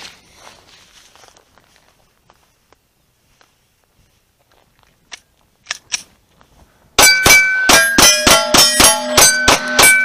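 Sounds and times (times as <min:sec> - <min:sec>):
steel targets ringing: 0:07.0 - 0:10.0.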